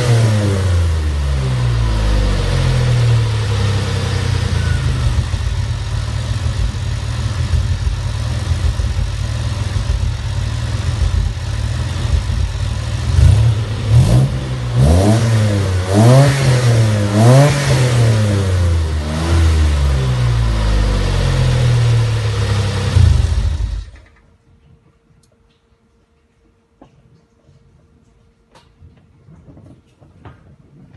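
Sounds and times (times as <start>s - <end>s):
car engine idling and revving: 0.0s - 24.1s.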